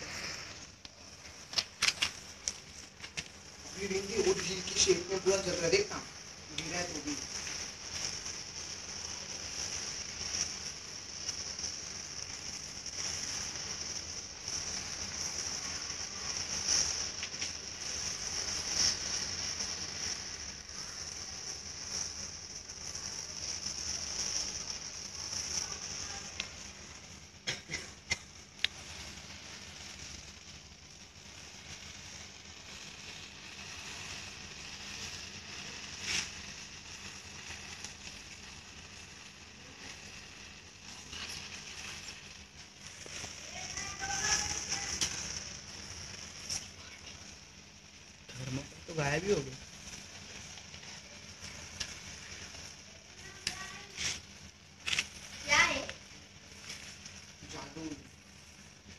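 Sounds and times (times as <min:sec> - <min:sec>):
sharp pops: 0:00.0 - 0:04.7, 0:27.4 - 0:30.3, 0:33.5 - 0:46.7
burning matchsticks hissing: 0:00.0 - 0:58.9.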